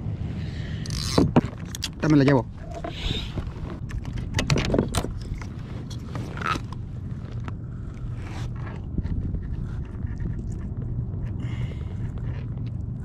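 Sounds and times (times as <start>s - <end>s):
low steady rumble: 0.0s - 13.0s
hands clicking and scraping fish hook: 0.8s - 2.2s.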